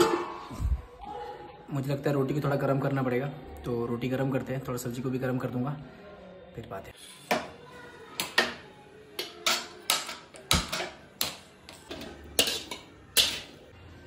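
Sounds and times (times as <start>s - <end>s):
metal spatula clinking in a pan: 9.2s - 13.6s.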